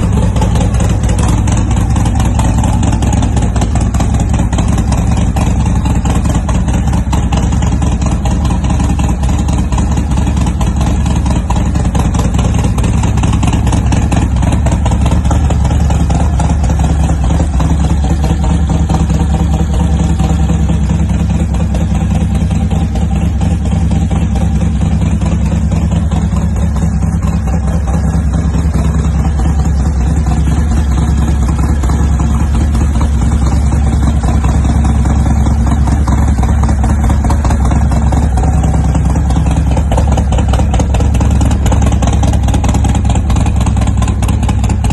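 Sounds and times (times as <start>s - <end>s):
motorcycle engine idling: 0.0s - 44.9s.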